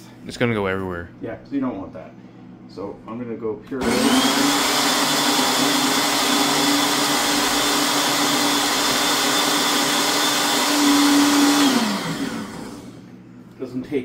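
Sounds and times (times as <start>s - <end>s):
blender running: 3.8s - 13.1s.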